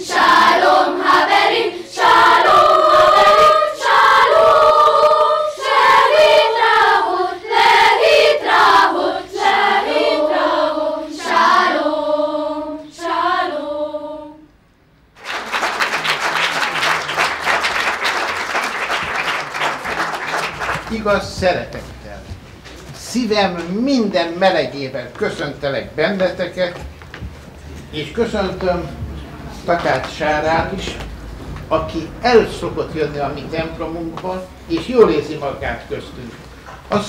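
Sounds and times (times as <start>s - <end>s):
children's choir singing: 0.0s - 14.5s
audience applauding: 15.2s - 21.3s.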